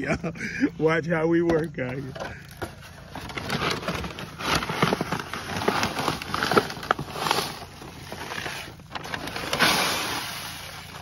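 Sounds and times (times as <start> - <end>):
paper bags crinkling: 2.0 - 11.0
hands scooping seeds: 2.4 - 11.0.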